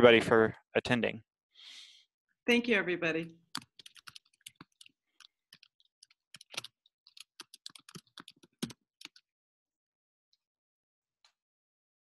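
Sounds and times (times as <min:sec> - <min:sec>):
computer keyboard typing: 0:03.5 - 0:09.2.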